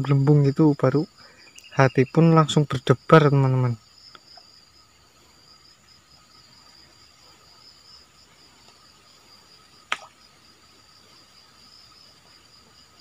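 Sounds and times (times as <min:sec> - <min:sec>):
high-pitched insect chirring: 0:00.0 - 0:13.0.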